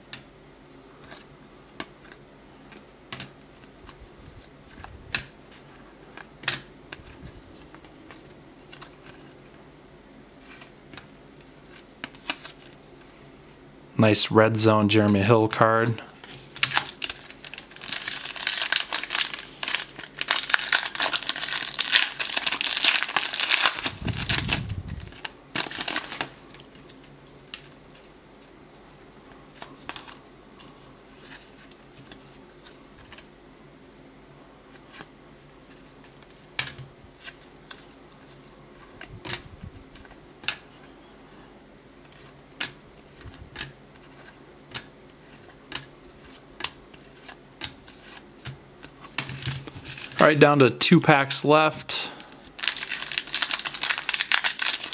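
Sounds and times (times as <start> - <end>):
foil pack crinkling and tearing: 16.4 - 27.7, 52.6 - 54.9.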